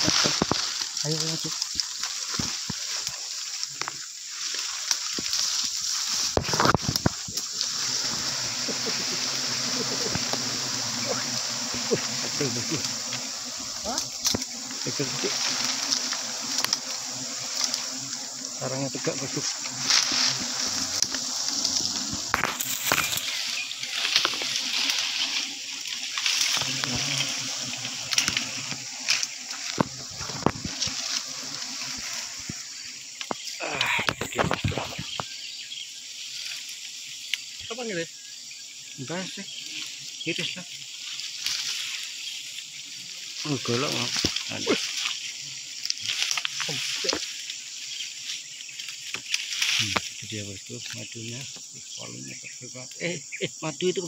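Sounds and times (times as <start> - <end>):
twigs snapping: 0.0 - 7.7, 14.0 - 14.6, 15.2 - 18.2, 19.6 - 32.2, 45.8 - 47.5
leaves and branches rustling: 0.0 - 53.4
steady high hiss: 0.0 - 54.0.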